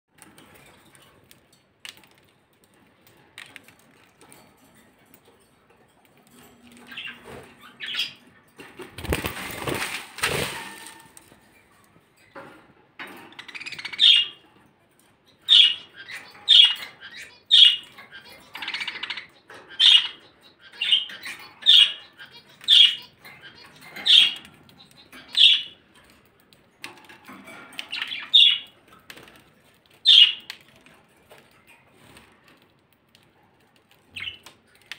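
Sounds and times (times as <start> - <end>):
budgerigars chirping: 6.9 - 8.2, 13.4 - 14.4, 15.4 - 25.8, 27.9 - 28.8, 30.1 - 30.5
loud rustle: 9.0 - 11.1.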